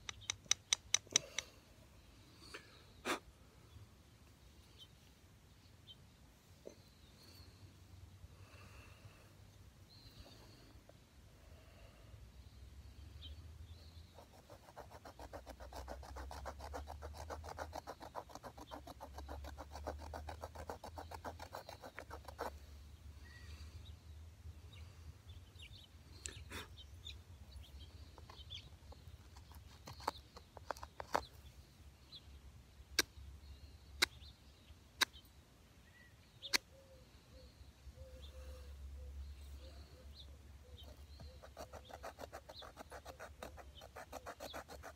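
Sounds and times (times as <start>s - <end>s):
sharp clicks: 0.0s - 1.5s
flint scraping wood: 14.4s - 22.5s, 29.2s - 31.3s, 41.4s - 44.9s.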